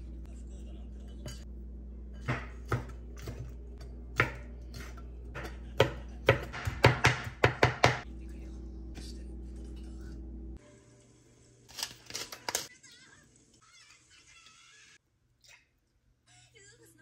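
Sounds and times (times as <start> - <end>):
steady low hum: 0.0 - 11.6.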